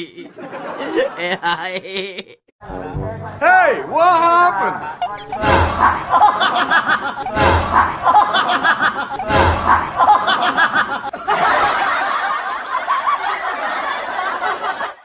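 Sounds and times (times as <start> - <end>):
laugh sound effect: 0.0 - 2.4, 4.8 - 11.8
steady noisy sound: 5.2 - 11.1.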